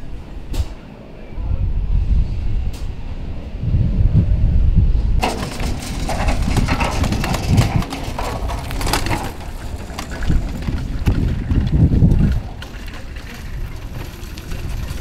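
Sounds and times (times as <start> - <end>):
wind rumble on microphone: 0.0 - 15.0
karts on wheeled stands clattering: 5.2 - 15.0.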